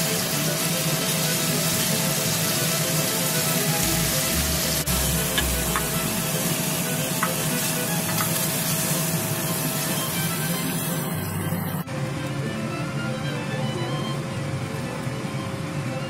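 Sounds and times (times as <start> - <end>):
meat sizzling in hot oil: 0.0 - 11.8.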